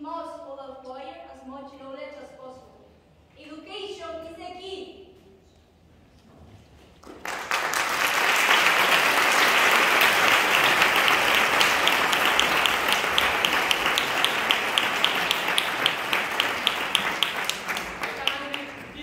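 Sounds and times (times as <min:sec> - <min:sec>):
audience applauding: 0:07.0 - 0:19.0
even separate claps: 0:07.0 - 0:19.0.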